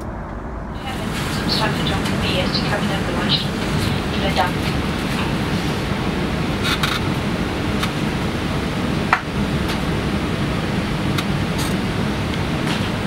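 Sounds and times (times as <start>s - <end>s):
air conditioning hiss: 0.0s - 13.0s
airliner cabin noise: 0.0s - 13.0s.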